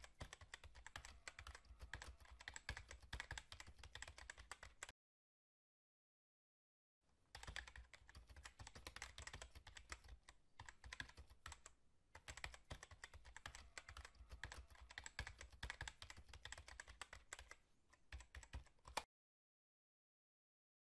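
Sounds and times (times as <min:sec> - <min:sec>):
keyboard typing clicks: 0:00.0 - 0:04.9, 0:07.4 - 0:19.1.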